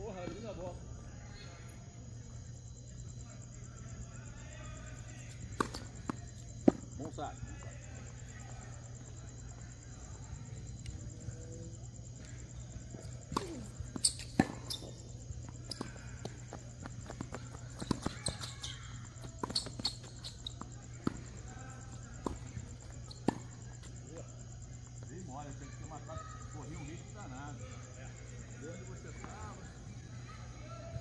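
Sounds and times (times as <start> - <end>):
steady low hum: 0.7 - 25.3
tennis ball pops off rackets: 5.5 - 6.8, 13.3 - 14.9.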